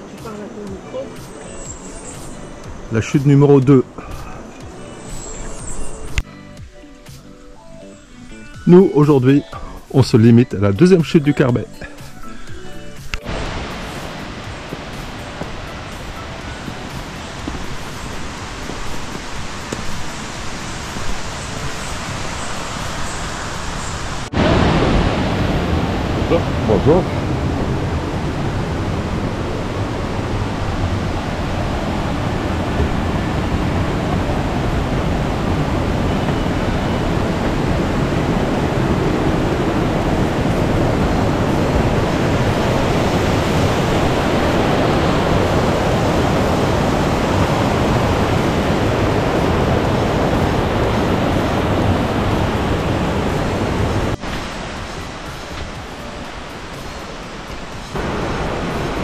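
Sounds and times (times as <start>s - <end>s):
river water tumbling over rocks: 13.1s - 59.0s.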